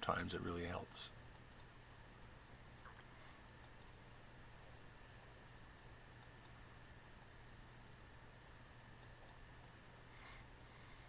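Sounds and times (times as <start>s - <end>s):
faint steady hum: 0.0s - 11.0s
computer mouse clicks: 2.9s - 4.0s, 6.1s - 6.6s, 9.0s - 9.4s.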